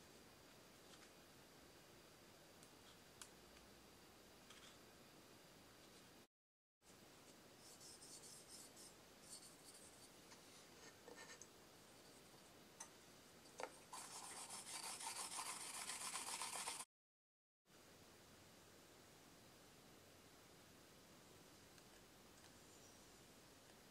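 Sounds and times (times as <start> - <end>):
brisk rubbing: 13.6 - 16.8
charcoal scraping on lacquer: 13.9 - 16.9.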